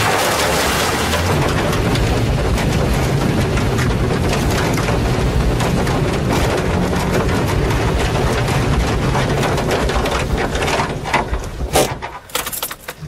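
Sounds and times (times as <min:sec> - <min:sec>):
car engine running hard: 0:00.0 - 0:13.0
stalks rattling against car body: 0:01.7 - 0:13.0.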